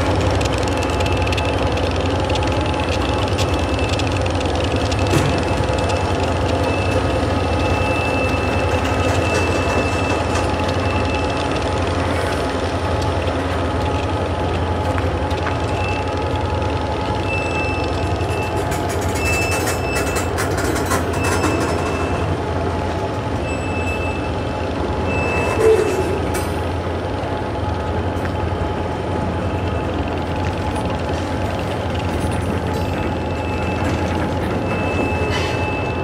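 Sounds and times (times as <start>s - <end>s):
diesel locomotive engine hum: 0.0s - 36.0s
freight train rolling: 0.0s - 36.0s
high-pitched wheel squeal: 17.3s - 22.4s, 23.4s - 26.5s.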